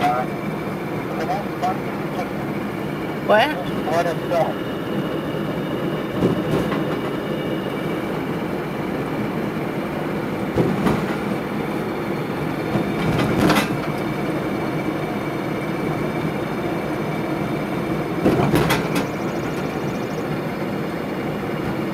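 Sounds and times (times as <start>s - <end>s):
road noise rumble: 0.0s - 21.9s
cabin rattling: 5.9s - 7.4s, 10.2s - 14.3s, 18.2s - 19.8s
sharp knocks: 6.2s - 7.1s, 10.5s - 11.4s.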